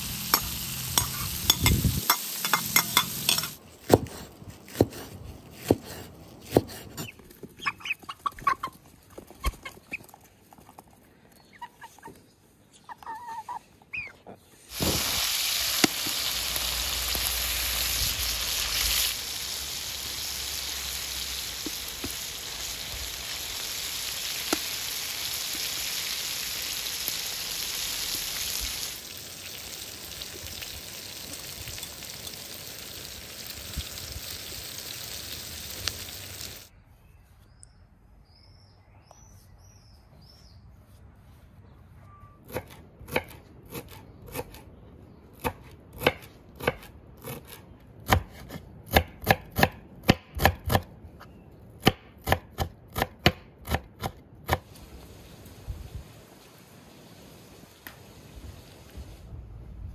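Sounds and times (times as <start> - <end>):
meat and vegetables sizzling in a pan: 0.0 - 3.6, 14.7 - 36.7
knife chopping on wooden board: 3.8 - 7.0
birds chirping: 7.0 - 10.2.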